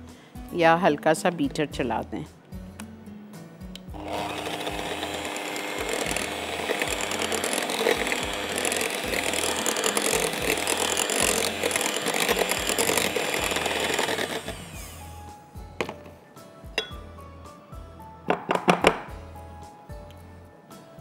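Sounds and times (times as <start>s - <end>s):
electric hand mixer running: 4.0s - 15.2s.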